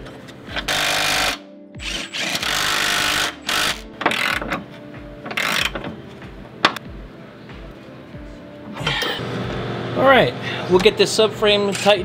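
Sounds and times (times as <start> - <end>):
electric ratchet whirring: 0.5 - 4.6, 5.3 - 6.0
hand ratchet clicking: 0.6 - 4.6, 5.3 - 6.0.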